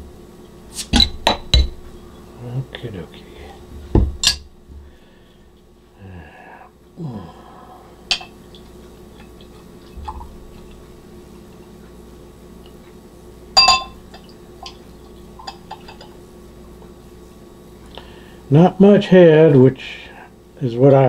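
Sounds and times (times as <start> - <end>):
ringing glass clink: 13.6 - 14.8
small glass clinks: 13.6 - 14.8.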